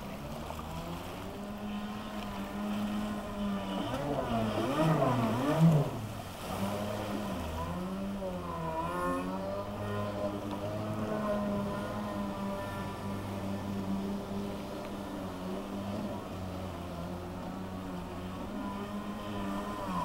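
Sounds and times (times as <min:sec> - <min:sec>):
jet ski engine revving: 0:00.0 - 0:20.0.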